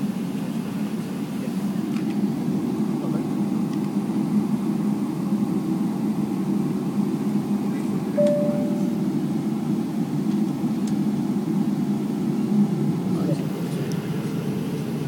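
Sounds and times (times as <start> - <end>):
airplane cabin hum: 8.1 - 9.7.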